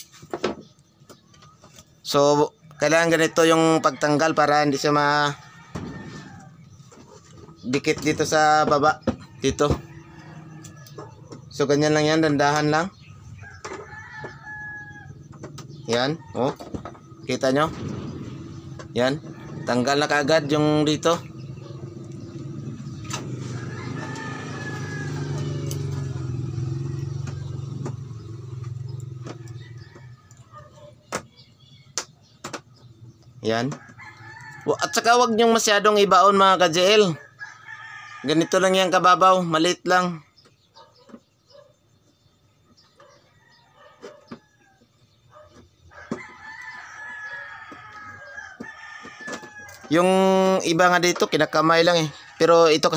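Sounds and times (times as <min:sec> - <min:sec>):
rooster crowing: 0:02.7 - 0:06.7, 0:09.1 - 0:11.6, 0:13.2 - 0:17.2, 0:17.8 - 0:31.0, 0:33.7 - 0:35.4, 0:37.0 - 0:39.2, 0:43.0 - 0:52.9
engine hum: 0:09.0 - 0:31.2.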